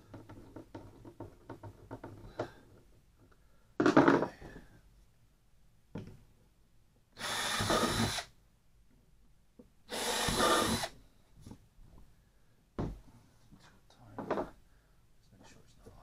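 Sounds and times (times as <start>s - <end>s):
cordless drill driving screws: 7.2s - 8.3s, 9.9s - 11.0s.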